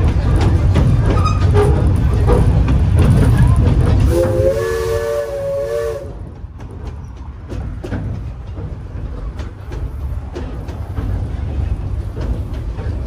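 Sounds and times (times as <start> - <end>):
train rumbling with wheel knocks: 0.0 - 13.0
steam hissing: 0.6 - 6.2
steam locomotive whistle chord: 4.1 - 6.2.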